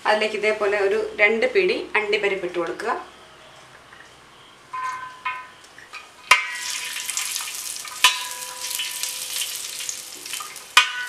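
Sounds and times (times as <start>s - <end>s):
steady sizzling: 6.2s - 11.0s
sharp metal knocks on a pan: 6.3s - 6.7s, 8.0s - 9.2s, 10.8s - 11.0s
nuts clinking into a pan: 6.3s - 11.0s.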